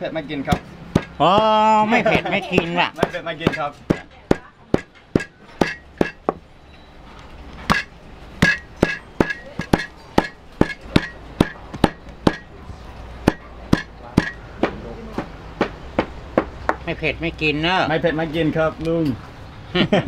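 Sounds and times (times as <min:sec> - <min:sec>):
sledgehammer pounding on wood: 0:00.5 - 0:01.7, 0:02.5 - 0:06.4, 0:07.7 - 0:12.5, 0:13.2 - 0:16.8.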